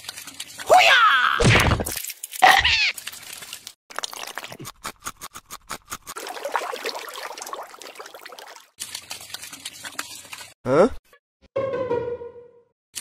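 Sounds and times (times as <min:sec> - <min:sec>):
water pouring and trickling: 0:00.0 - 0:00.8, 0:02.0 - 0:04.7, 0:06.1 - 0:10.6.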